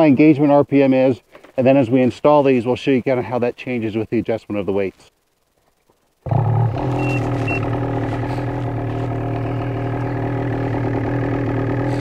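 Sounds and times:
snowmobile engine idling: 6.3s - 12.0s
short high beeps: 6.8s - 7.7s.

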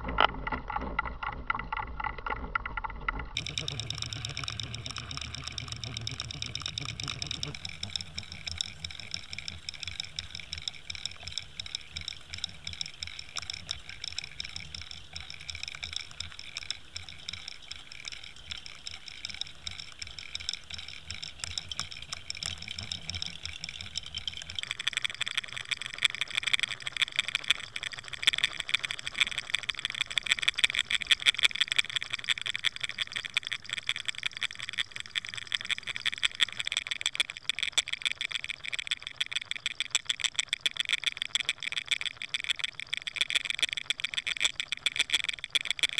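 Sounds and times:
low hum: 0.0s - 25.2s
lure clicking and rattling: 0.2s - 45.9s
water rushing underwater: 3.4s - 26.0s.

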